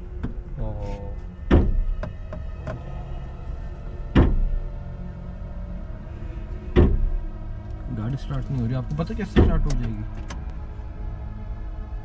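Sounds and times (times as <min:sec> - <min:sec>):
steady low drone: 0:00.0 - 0:12.0
heavy thuds: 0:04.0 - 0:04.8.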